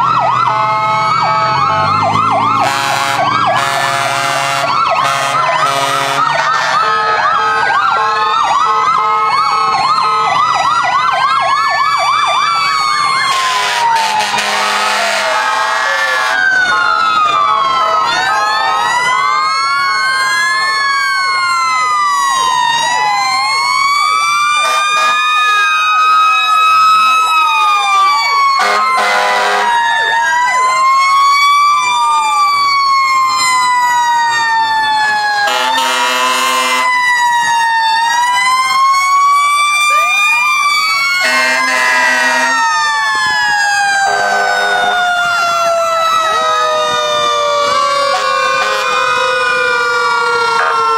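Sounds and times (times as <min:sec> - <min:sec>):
fire truck sirens wailing: 0:00.0 - 0:50.9
loud horn blasts: 0:02.5 - 0:07.5, 0:13.3 - 0:16.4, 0:24.6 - 0:25.2, 0:28.6 - 0:29.8, 0:35.4 - 0:36.9, 0:41.2 - 0:42.6, 0:44.0 - 0:45.0, 0:48.1 - 0:49.0.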